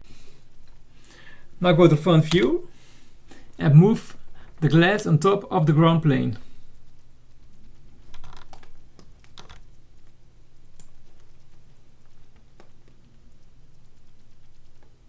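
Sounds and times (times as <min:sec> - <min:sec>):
faint low hum: 0:00.0 - 0:15.0
computer mouse and keyboard clicks: 0:08.0 - 0:13.4.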